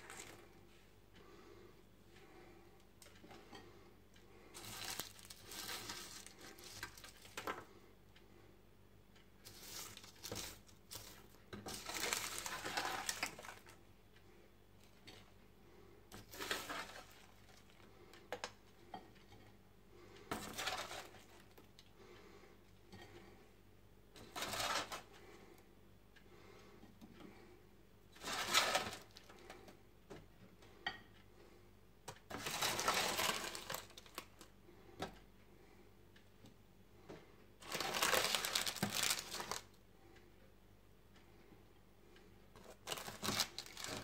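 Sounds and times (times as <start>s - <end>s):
baking paper crinkling: 0.0s - 0.5s, 4.6s - 7.6s, 9.4s - 13.8s, 16.2s - 17.9s, 20.3s - 21.5s, 24.2s - 25.1s, 28.2s - 29.2s, 32.3s - 34.5s, 37.6s - 39.7s, 42.6s - 44.0s
plastic spoon scraping baking sheet: 9.5s - 13.7s, 16.2s - 17.4s, 20.3s - 21.4s, 24.2s - 25.1s, 28.2s - 29.1s, 32.3s - 34.2s.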